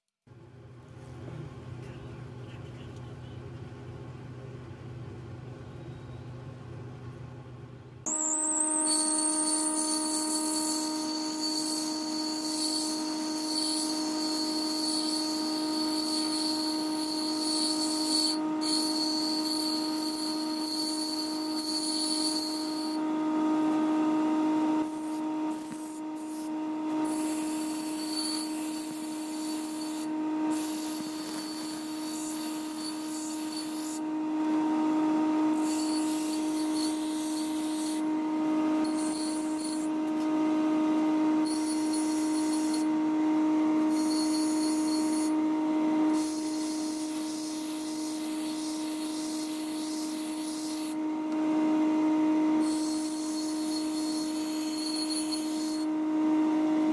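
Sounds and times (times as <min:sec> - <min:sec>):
blade grinding on stone: 0:08.1 - 0:23.0, 0:24.8 - 0:34.0, 0:35.6 - 0:38.1, 0:38.8 - 0:39.9, 0:41.4 - 0:42.9, 0:43.9 - 0:45.4, 0:46.1 - 0:51.0, 0:52.6 - 0:55.9
grinding wheel humming: 0:08.1 - 0:51.4, 0:52.6 - 0:55.9.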